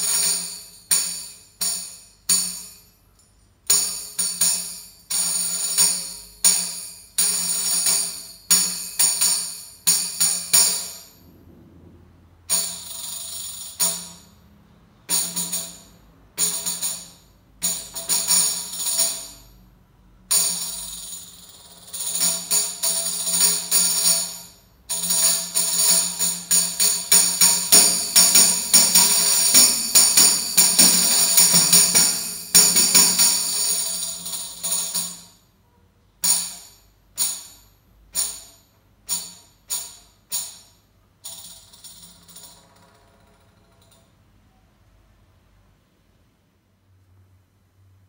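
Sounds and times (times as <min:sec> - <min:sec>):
tambourine jingles: 0:15.1 - 0:19.7, 0:20.3 - 0:35.4.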